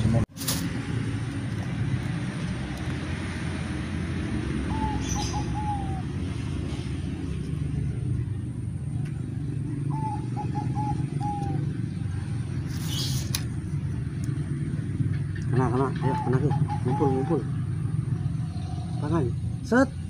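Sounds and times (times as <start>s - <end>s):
dove cooing: 4.6s - 6.5s, 9.8s - 13.1s, 15.6s - 19.0s.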